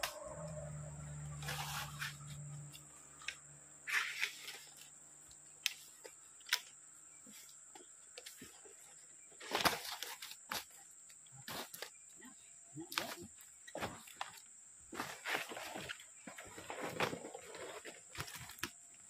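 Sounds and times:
high-pitched whine: 0.0s - 4.5s.

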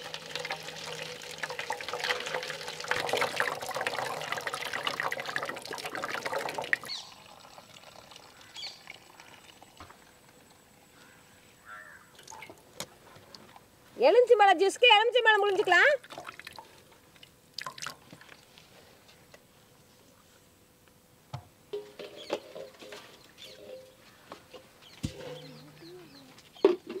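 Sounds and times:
juice pouring through strainer: 0.0s - 10.1s, 17.6s - 18.4s.

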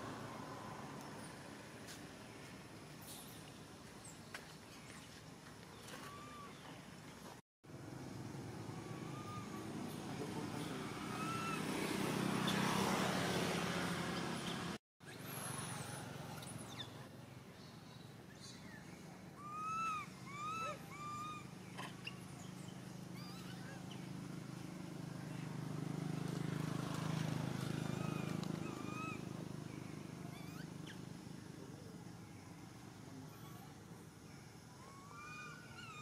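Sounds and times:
low engine hum: 4.8s - 17.9s
chirping animal calls: 8.7s - 11.8s, 19.4s - 22.4s, 27.8s - 31.1s, 34.8s - 36.0s.

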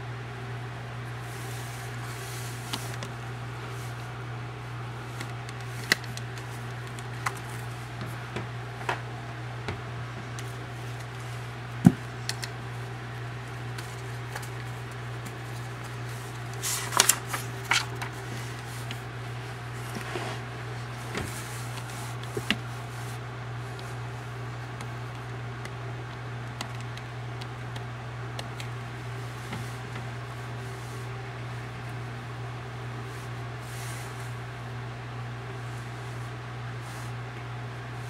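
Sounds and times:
steady low hum: 0.0s - 38.0s
cardboard and paper rustling: 13.7s - 19.1s.

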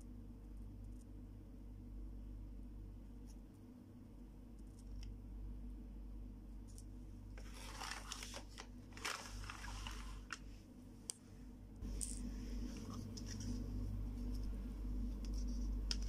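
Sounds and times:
steady low hum: 0.0s - 16.0s
rustling and plastic clatter: 7.4s - 10.5s.

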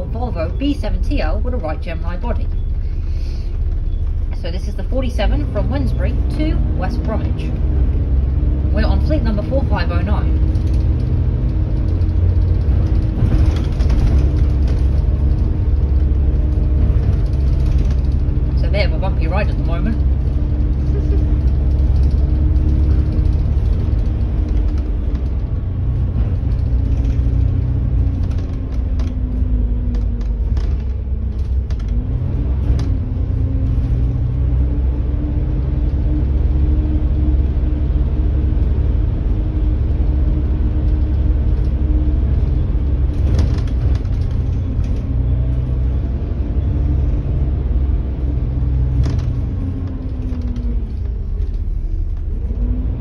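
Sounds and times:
bus engine and road rumble: 0.0s - 53.0s
bus whine rising and falling: 0.0s - 53.0s
sharp knocks over bumpy road: 40.9s - 45.1s.

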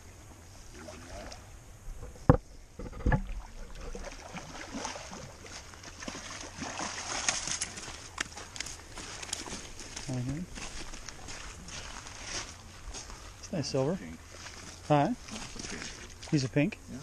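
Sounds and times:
shallow water splashing: 0.6s - 2.2s, 2.8s - 9.9s, 14.2s - 16.6s.

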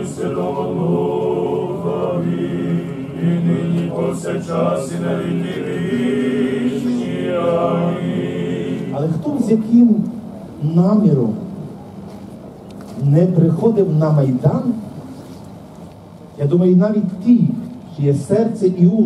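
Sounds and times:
voices chanting together: 0.0s - 9.5s.

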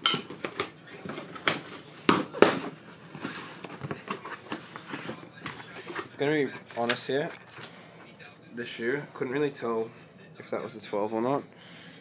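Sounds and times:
sharp cardboard cracks: 0.0s - 4.5s
cardboard box rustling: 0.3s - 7.3s.

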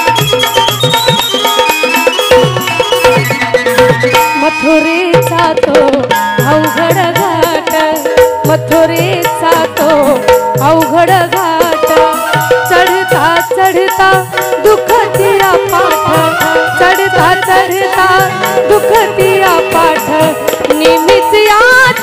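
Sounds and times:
hand drum beat: 0.0s - 4.4s, 5.1s - 22.0s
wavering melody line: 0.0s - 5.3s, 11.8s - 21.6s
rattling percussion: 0.0s - 22.0s.

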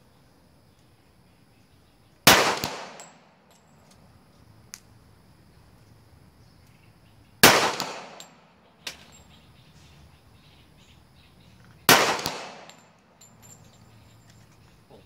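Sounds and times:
gunshots with echo: 2.3s - 3.2s, 7.4s - 8.4s, 11.9s - 12.8s.

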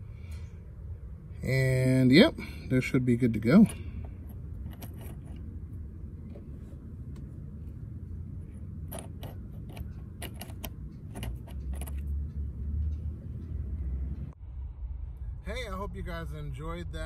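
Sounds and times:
low steady rumble: 0.0s - 17.0s
metal parts clinking: 3.5s - 5.6s, 8.6s - 12.3s.

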